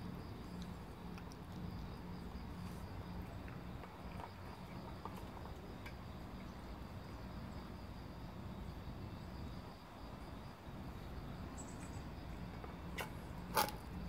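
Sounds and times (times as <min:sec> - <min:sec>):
cats chewing and licking: 0:00.0 - 0:09.0
steady low hum: 0:00.0 - 0:14.0.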